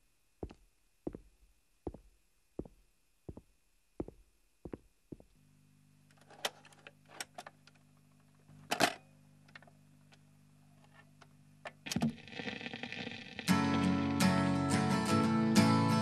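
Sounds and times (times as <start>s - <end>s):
footsteps on hard floor: 0.4s - 5.4s.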